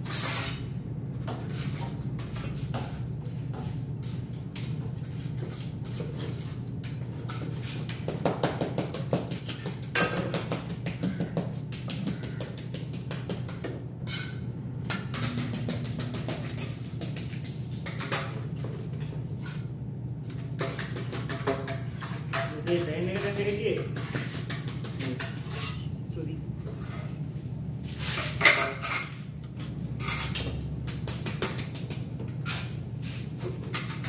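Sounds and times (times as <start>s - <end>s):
steady low hum: 0.0s - 34.0s
tiles tapping into mortar: 7.9s - 13.8s, 14.9s - 18.4s.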